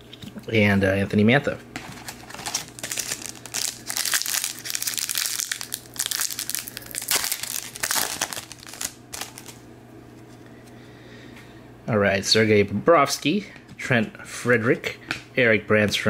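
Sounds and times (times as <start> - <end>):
foil wrapper crinkling: 1.8 - 9.6.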